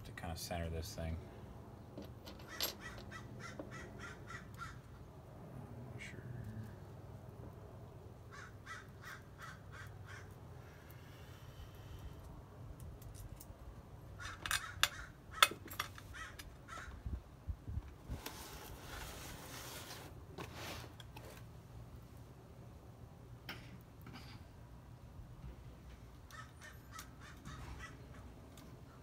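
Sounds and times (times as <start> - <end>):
metal parts clinking on brake rotor: 2.0 - 3.2, 14.4 - 16.5
crows cawing: 2.5 - 5.0, 8.3 - 10.4, 14.2 - 17.0, 26.3 - 28.2.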